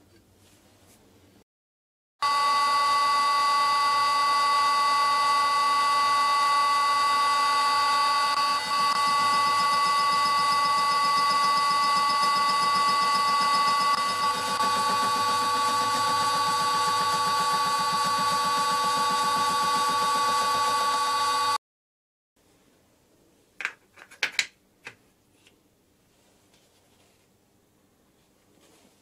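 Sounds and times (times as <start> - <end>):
lathe whine: 2.2 - 21.6.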